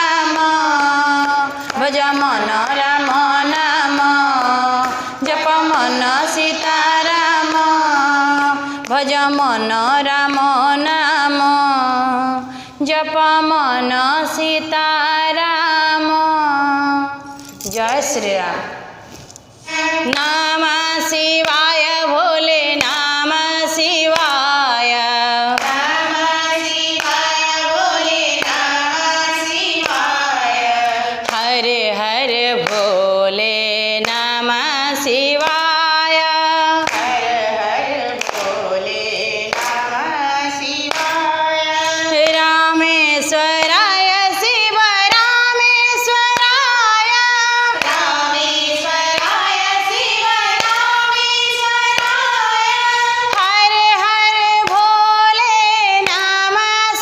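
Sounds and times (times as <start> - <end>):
hand claps keeping time: 0.0 - 11.5, 22.7 - 56.6
women singing devotional song: 0.0 - 57.0.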